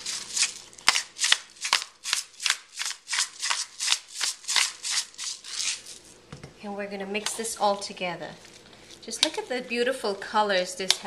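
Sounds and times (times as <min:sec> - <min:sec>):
pepper mill grinding: 0:00.0 - 0:06.2.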